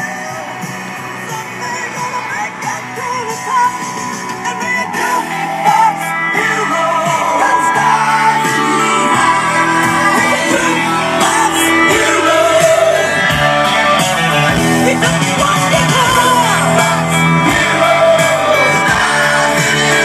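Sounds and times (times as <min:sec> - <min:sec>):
rock music with singing: 0:00.0 - 0:20.0.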